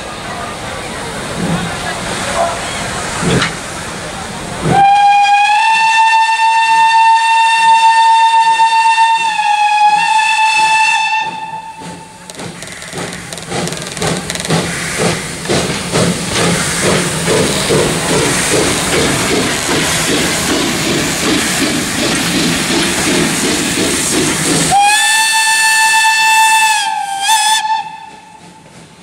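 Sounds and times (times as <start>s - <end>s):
steam locomotive exhaust chuffs: 4.6s - 29.0s
steam locomotive whistle: 4.7s - 12.2s, 24.7s - 28.6s.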